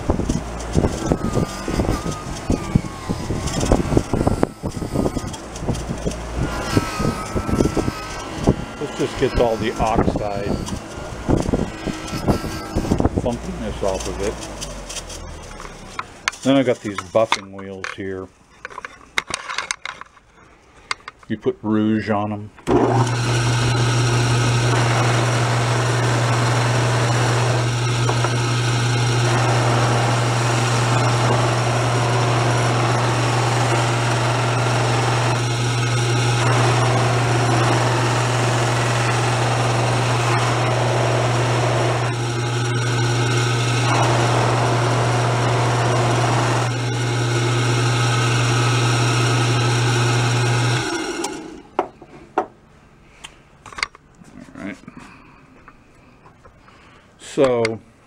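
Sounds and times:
buffer motor hum: 0.0 - 14.6, 22.7 - 51.8.

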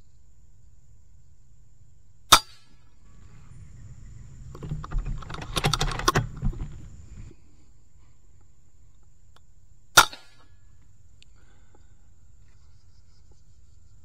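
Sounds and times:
low rumble: 3.0 - 7.4
mechanical clicks and knocks: 4.5 - 6.9.

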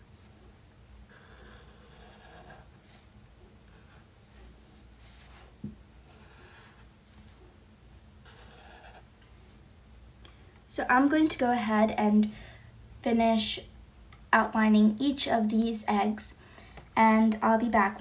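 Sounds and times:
marker scratching on paper: 1.1 - 3.1, 3.7 - 7.4, 8.2 - 9.1.

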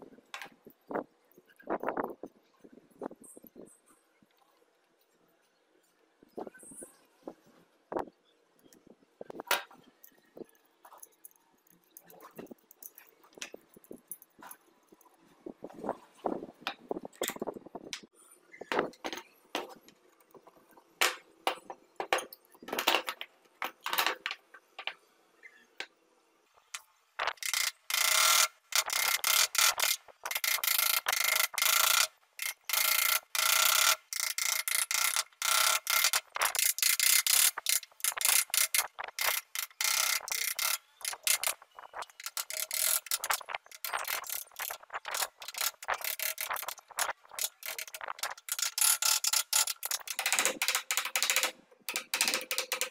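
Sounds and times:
clicks and knocks: 26.7 - 52.9.

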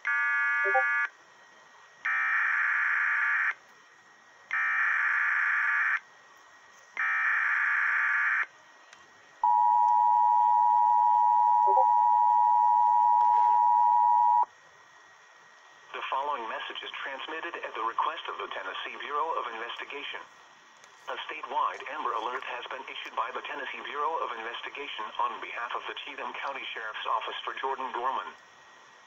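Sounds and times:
two-tone attention signal: 0.6 - 1.0, 9.5 - 14.4.

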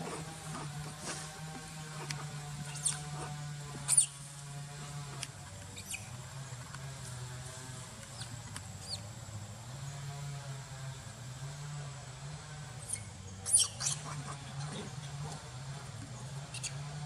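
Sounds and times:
steady low hum: 0.0 - 17.0
macaque squeaking: 2.6 - 4.2, 5.8 - 6.1, 12.9 - 14.7.

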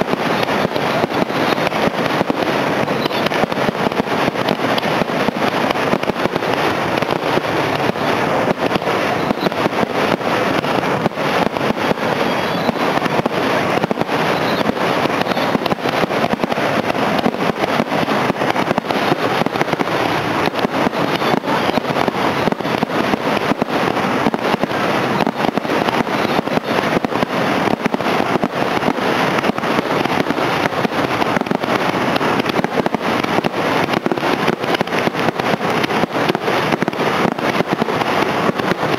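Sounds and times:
firework shells bursting: 0.0 - 38.9.

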